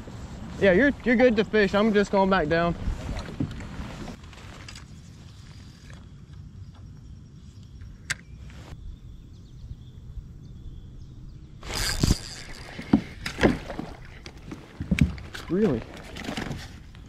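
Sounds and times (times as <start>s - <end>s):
wind rumble on microphone: 0.0s - 4.2s, 8.6s - 13.2s
fish splashing and rattling: 11.6s - 17.0s.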